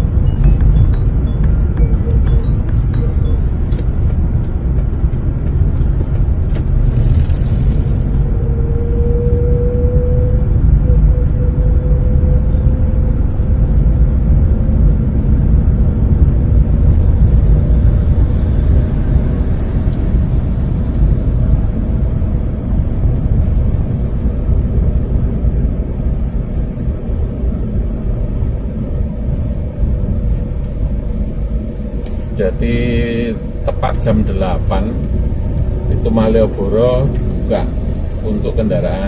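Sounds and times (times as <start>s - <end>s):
car engine and tyre rumble: 0.0s - 39.0s
faint steady drone: 0.0s - 39.0s.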